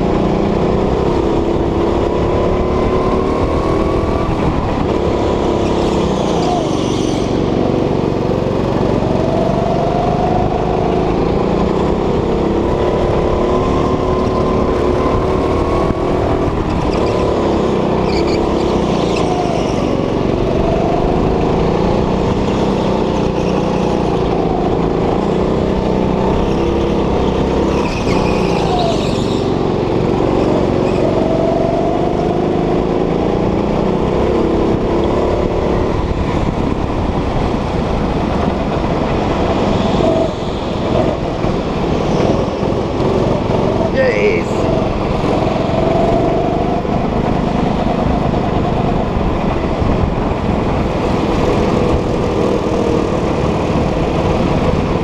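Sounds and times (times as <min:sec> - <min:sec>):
go-kart engine: 0:00.0 - 0:55.0
tires squealing: 0:02.9 - 0:08.0, 0:13.4 - 0:32.8.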